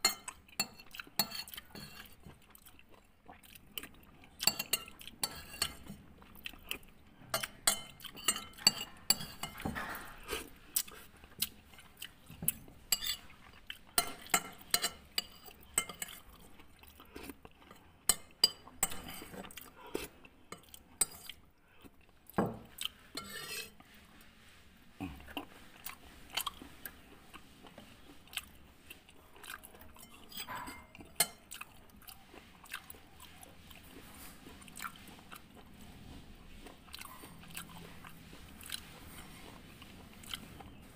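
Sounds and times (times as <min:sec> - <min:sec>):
person chewing: 0:00.2 - 0:23.2, 0:23.8 - 0:40.9
metal spoon clinking on ceramic bowl: 0:07.3 - 0:10.0, 0:13.0 - 0:13.2.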